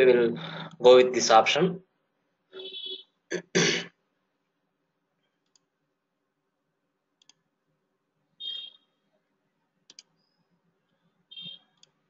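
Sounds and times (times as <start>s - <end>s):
computer mouse clicks: 5.4s - 5.7s, 7.2s - 7.5s, 9.8s - 10.3s, 11.4s - 12.0s.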